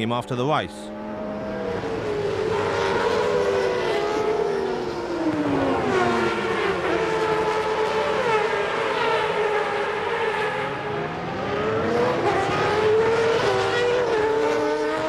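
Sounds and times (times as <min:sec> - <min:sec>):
race car engine revving: 0:00.9 - 0:15.0.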